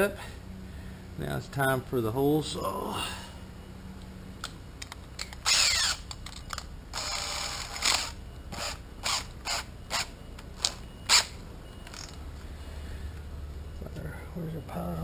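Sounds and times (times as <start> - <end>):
drill chuck ratcheting: 5.2 - 11.3
drill spinning: 5.4 - 6.1, 6.9 - 11.3.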